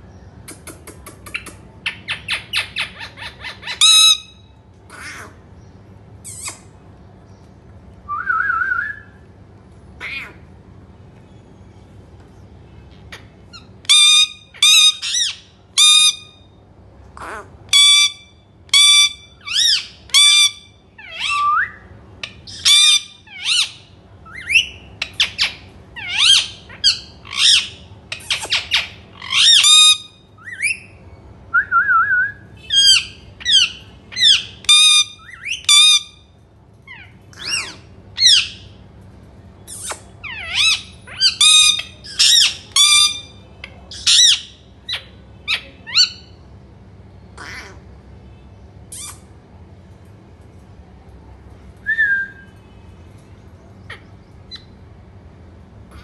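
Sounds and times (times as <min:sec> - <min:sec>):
parakeet squawks: 0:01.3 - 0:05.4, 0:10.0 - 0:10.5, 0:13.1 - 0:16.4, 0:17.2 - 0:21.4, 0:22.2 - 0:31.0, 0:32.6 - 0:36.3, 0:36.9 - 0:38.8, 0:39.7 - 0:46.4, 0:47.4 - 0:47.9, 0:48.9 - 0:49.3.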